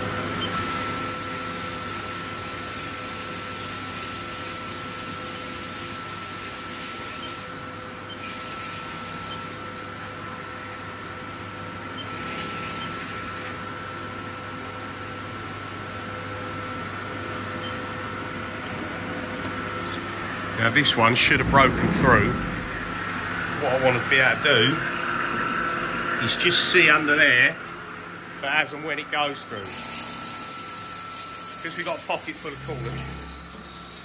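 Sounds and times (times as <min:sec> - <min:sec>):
machine hum: 0:00.0 - 0:34.0
high-pitched cutting squeal: 0:21.2 - 0:27.6, 0:29.6 - 0:34.0.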